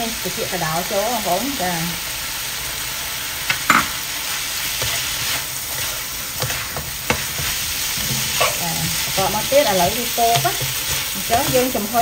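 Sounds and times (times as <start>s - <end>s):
mushrooms sizzling in oil: 0.0s - 12.0s
spatula knocking and scraping pan: 3.5s - 12.0s.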